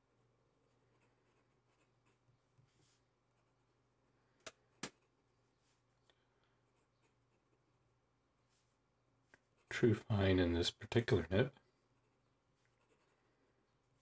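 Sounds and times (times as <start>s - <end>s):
pen nib scratching paper: 11.9s - 13.2s.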